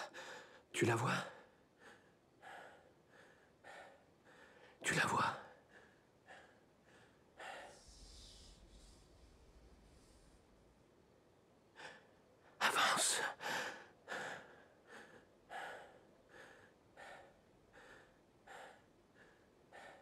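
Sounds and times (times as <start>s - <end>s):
woman breathing hard: 5.6s - 10.9s, 13.4s - 20.0s.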